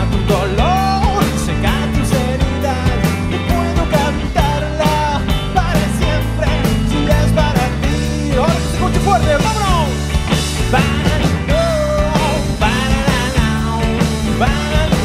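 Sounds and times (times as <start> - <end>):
live rock band playing: 0.0 - 15.0
man singing: 0.0 - 15.0.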